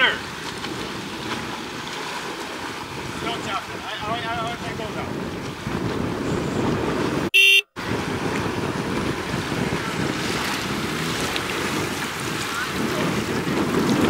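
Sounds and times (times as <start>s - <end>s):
sea water sloshing: 0.0s - 6.2s, 7.8s - 14.0s
wind buffeting microphone: 0.0s - 14.0s
short loud beep: 7.3s - 7.8s.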